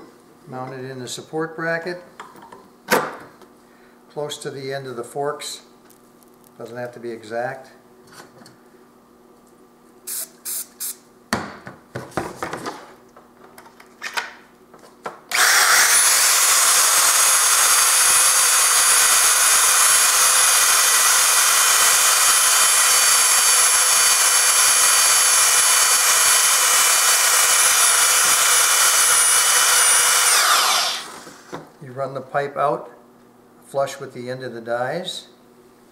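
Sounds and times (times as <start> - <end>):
electric pipe threader whining: 15.3 - 31.6.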